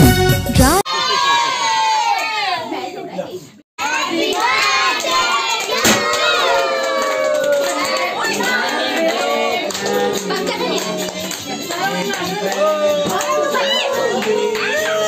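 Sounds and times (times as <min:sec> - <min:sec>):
people clapping: 0:03.8 - 0:15.0
party popper bang: 0:05.8 - 0:06.3
people shouting and singing: 0:06.0 - 0:15.0.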